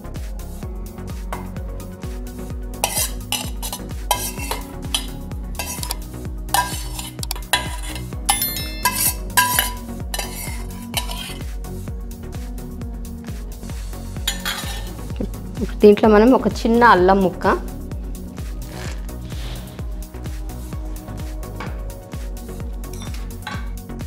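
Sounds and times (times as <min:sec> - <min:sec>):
metal spoon scraping steel bowl: 0:02.8 - 0:11.5, 0:14.2 - 0:15.2, 0:22.9 - 0:23.8.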